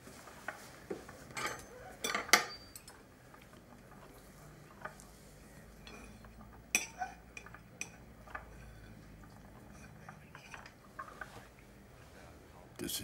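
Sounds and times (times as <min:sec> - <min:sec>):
knife and fork clinking on plate: 0:01.4 - 0:02.9, 0:05.8 - 0:10.8.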